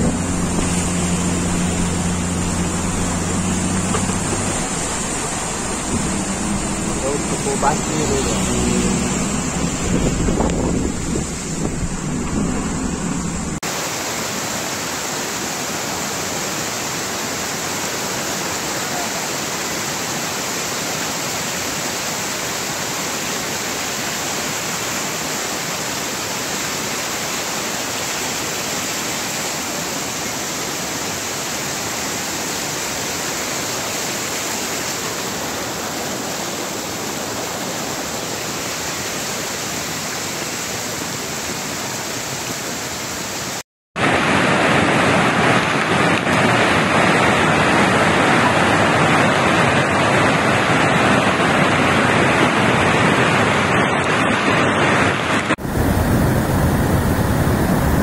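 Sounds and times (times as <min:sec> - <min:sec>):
low vehicle rumble: 0:00.0 - 0:13.6
water rushing: 0:00.0 - 0:58.0.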